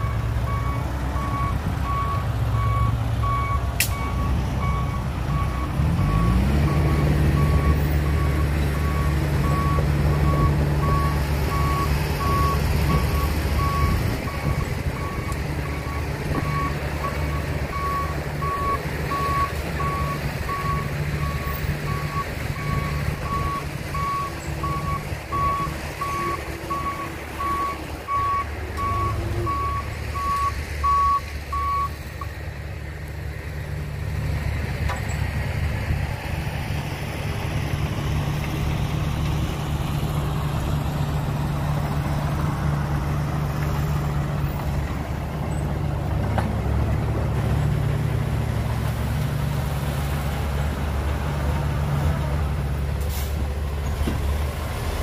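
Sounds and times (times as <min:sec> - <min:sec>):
reversing alarm beeping: 0:00.0 - 0:16.7, 0:17.3 - 0:32.0
heavy engine revving: 0:00.0 - 0:55.0.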